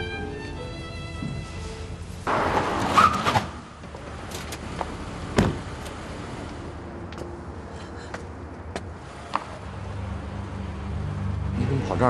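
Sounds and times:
car door shutting: 5.3 - 6.0.

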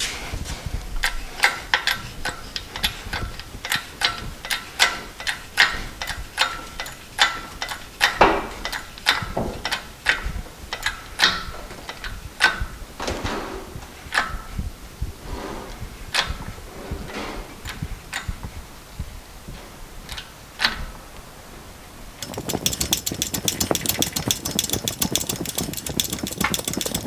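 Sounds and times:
hydraulic pump clicking: 1.4 - 12.6, 22.2 - 27.0
metallic rasps: 22.2 - 27.0.

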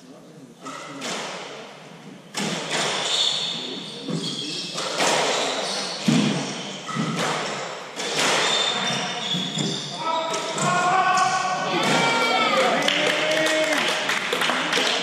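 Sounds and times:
squash ball cracking off racquets: 6.0 - 8.8.

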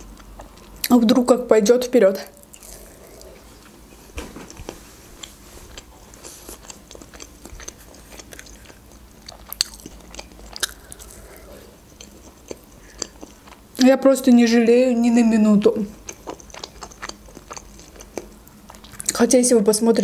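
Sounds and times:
chewing soft food: 0.0 - 1.0, 2.4 - 13.9, 15.9 - 19.2.

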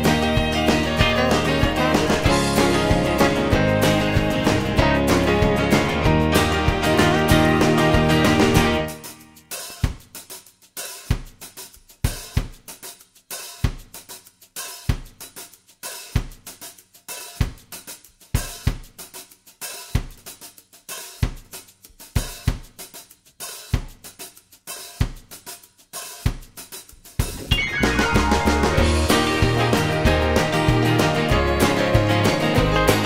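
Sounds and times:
hi-hat and cymbal ticks: 8.9 - 27.4
heavy drum hits: 27.2 - 31.4.

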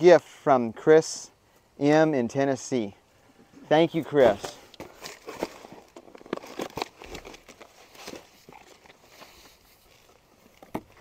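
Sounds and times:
cardboard rustling: 3.9 - 11.0.

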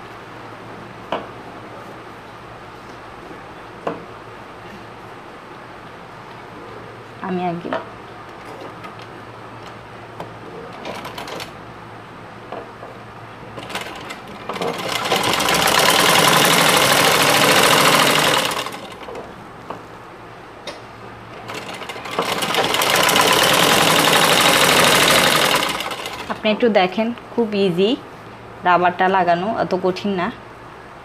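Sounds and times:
sewing machine stitching: 10.7 - 11.6, 13.6 - 19.2, 21.3 - 26.4.

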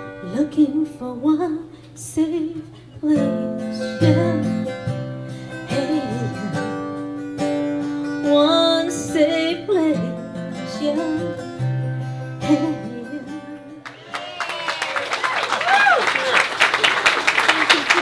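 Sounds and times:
person singing: 0.0 - 5.0, 5.6 - 6.9, 12.4 - 13.8
strummed acoustic guitar: 2.8 - 13.9
people clapping: 13.8 - 18.0.

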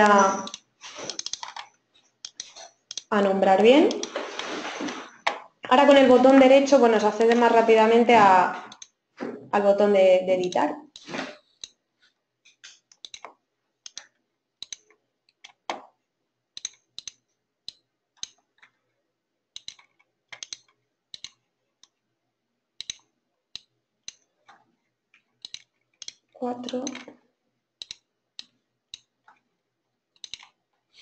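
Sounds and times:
mouse and keyboard clicking: 0.0 - 3.1, 3.9 - 4.1, 8.7 - 9.0, 12.5 - 15.9, 16.6 - 18.7, 19.6 - 22.0, 22.8 - 24.6, 25.3 - 27.1, 27.8 - 29.4, 30.1 - 31.0.

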